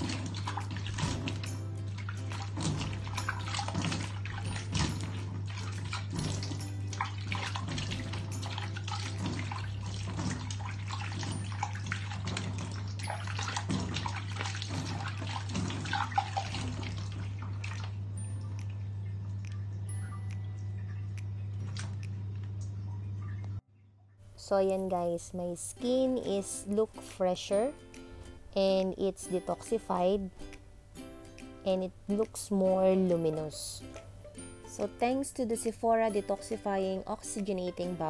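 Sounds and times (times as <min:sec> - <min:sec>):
water splashing on face: 0:00.0 - 0:19.7.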